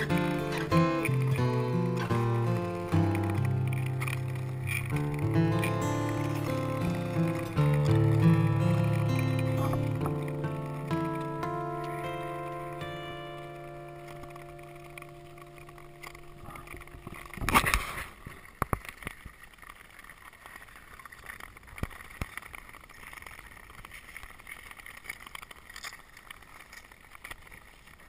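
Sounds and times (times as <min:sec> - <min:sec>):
background music: 0:00.0 - 0:17.0
skate blades scraping: 0:16.3 - 0:19.0.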